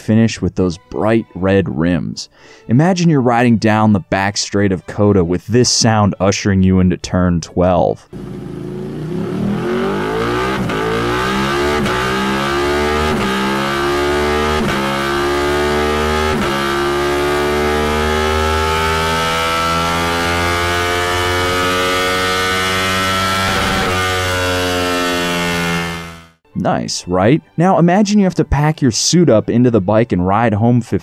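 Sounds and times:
motorcycle engine revving: 0:08.1 - 0:26.4.

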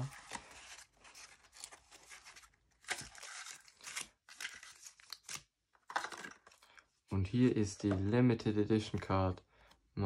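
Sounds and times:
cardboard packaging tearing: 0:00.0 - 0:05.4.

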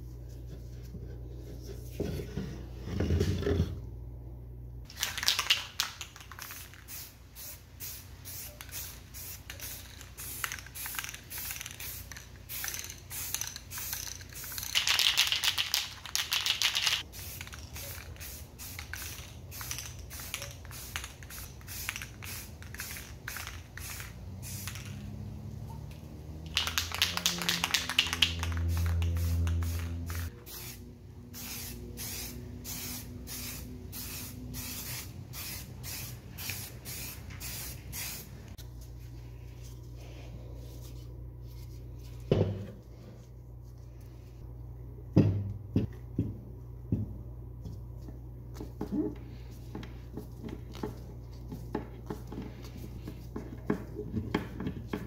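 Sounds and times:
aerosol spray can hissing: 0:16.4 - 0:25.0, 0:31.4 - 0:38.4.

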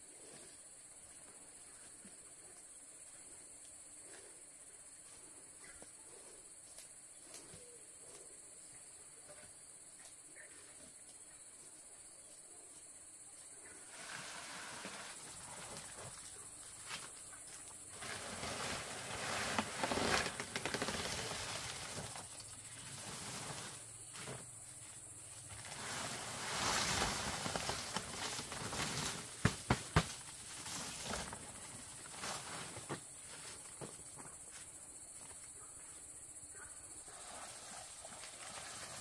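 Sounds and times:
palm fronds rustling: 0:13.7 - 0:35.3, 0:37.1 - 0:39.0.

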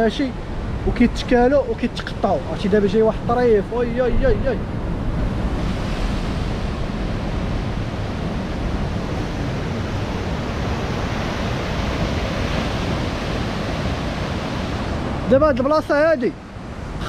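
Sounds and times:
low rumble: 0:03.0 - 0:08.8.

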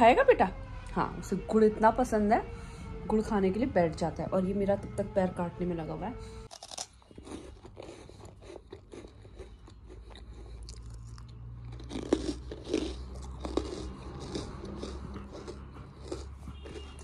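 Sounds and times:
dog crunching and chewing: 0:06.5 - 0:17.0.

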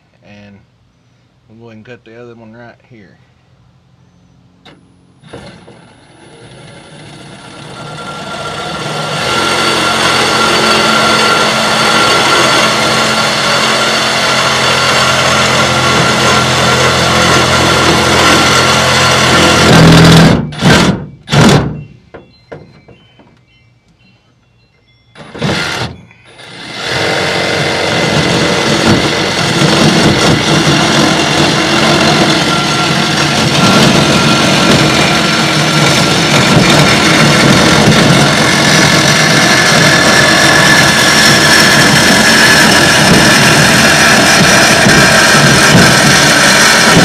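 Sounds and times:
power tool running: 0:04.7 - 0:21.7, 0:25.2 - 0:47.0.

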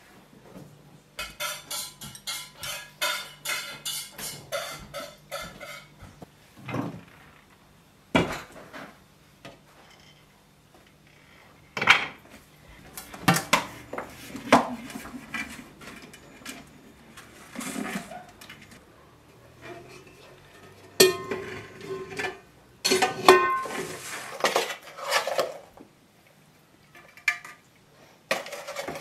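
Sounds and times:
metal pot and lid clanking: 0:01.2 - 0:06.0, 0:19.6 - 0:23.9.

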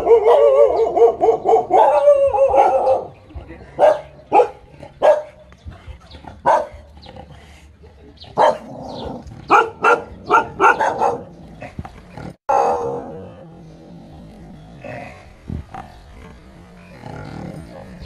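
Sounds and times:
small dog barking: 0:00.0 - 0:03.1, 0:03.8 - 0:05.3, 0:08.4 - 0:08.7, 0:09.5 - 0:11.2.

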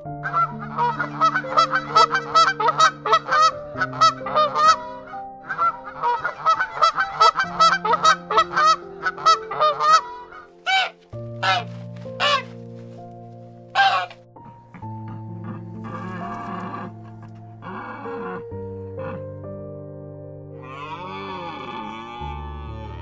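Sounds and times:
geese honking: 0:00.2 - 0:12.6, 0:13.7 - 0:14.2, 0:15.3 - 0:19.2.

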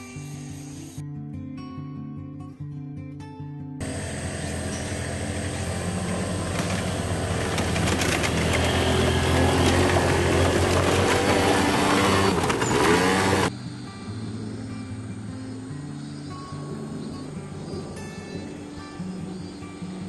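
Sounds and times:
small scooter engines: 0:03.8 - 0:13.5.

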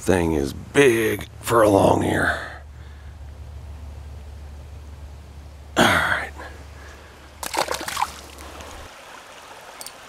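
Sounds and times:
water splashing: 0:07.2 - 0:10.0.

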